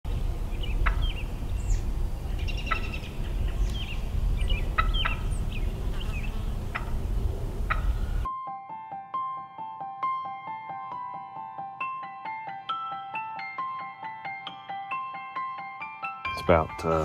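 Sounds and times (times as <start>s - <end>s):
songbirds chirping: 0.1s - 8.3s
steady low rumble: 0.1s - 8.3s
turkey gobbling: 0.6s - 8.3s.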